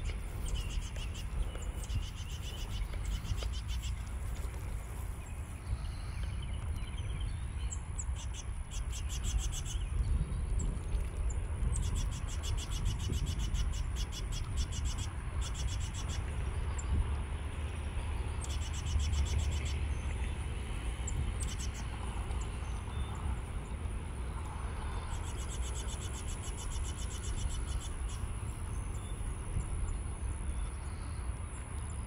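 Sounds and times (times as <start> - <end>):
birds trilling: 0.0 - 6.6
low steady rumble: 0.0 - 32.0.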